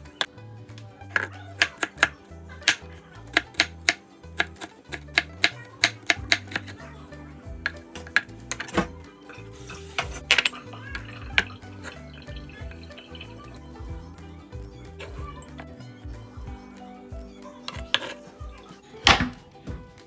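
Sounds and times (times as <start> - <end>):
background music: 0.0 - 20.0
knife chopping on wooden board: 1.2 - 6.7.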